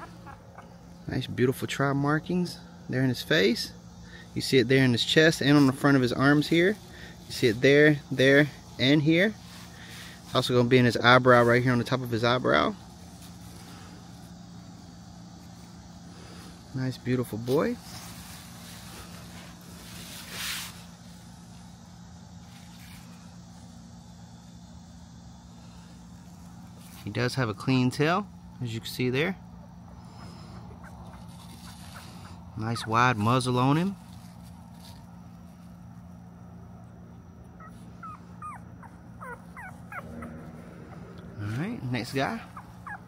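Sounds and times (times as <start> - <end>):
puppy whimpering: 0.0 - 0.8, 30.7 - 33.3, 37.6 - 41.5, 42.2 - 43.0
low machine hum: 0.0 - 43.0.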